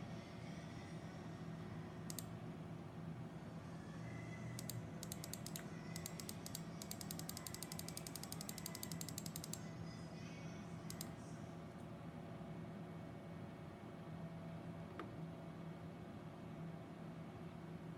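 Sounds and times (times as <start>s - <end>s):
computer mouse clicking: 2.0s - 2.3s, 4.6s - 9.6s, 10.9s - 11.1s.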